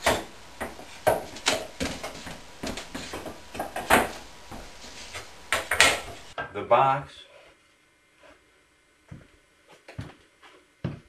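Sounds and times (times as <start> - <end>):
wooden boards knocking: 0.0 - 4.8
wood scraping: 0.0 - 6.4.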